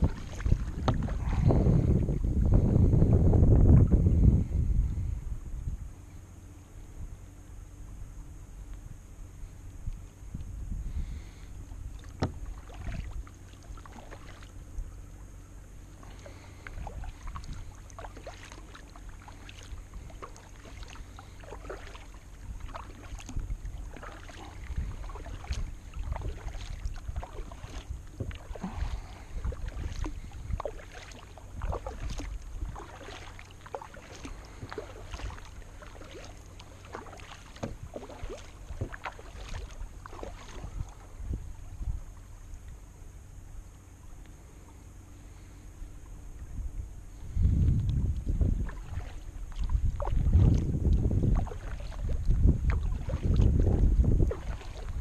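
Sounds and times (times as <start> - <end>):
paddle splashing in water: 0.0 - 2.6, 11.0 - 42.9, 47.2 - 55.0
steady low rumble: 0.0 - 55.0.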